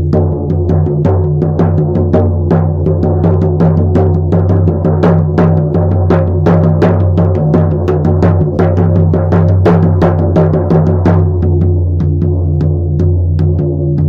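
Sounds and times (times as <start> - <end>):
hand drum beaten steadily: 0.0 - 14.0.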